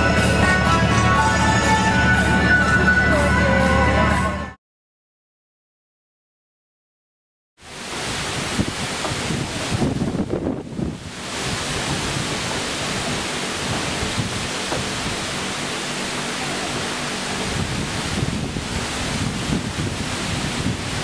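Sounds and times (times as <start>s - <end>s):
wind on microphone: 7.9s - 15.4s, 17.3s - 21.0s.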